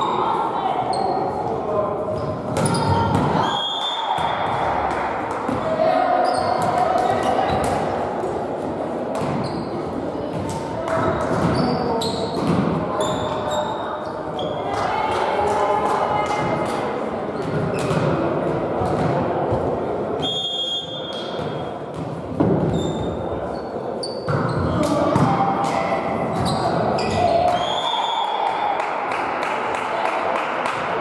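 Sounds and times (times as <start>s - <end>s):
sneakers squeaking on court: 2.1s - 3.4s, 9.2s - 10.4s, 11.3s - 14.6s, 21.0s - 25.3s, 26.3s - 27.5s.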